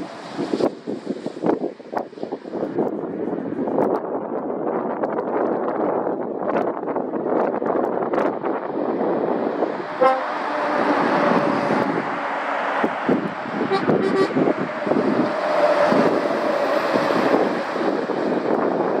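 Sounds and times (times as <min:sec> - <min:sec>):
traffic passing on wet road: 0:00.0 - 0:03.7, 0:08.1 - 0:19.0
vehicle horn toot: 0:10.0 - 0:10.3, 0:13.7 - 0:14.4.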